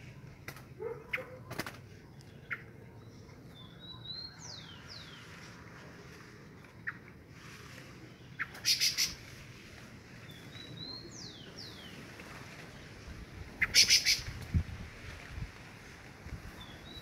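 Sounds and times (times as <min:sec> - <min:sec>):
thrush sharp clicking calls: 0:00.4 - 0:02.7, 0:08.4 - 0:09.2, 0:13.6 - 0:14.5.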